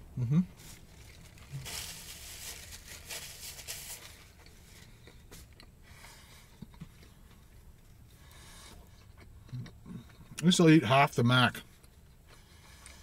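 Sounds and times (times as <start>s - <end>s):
paper wrapper crinkling: 0.6s - 4.4s.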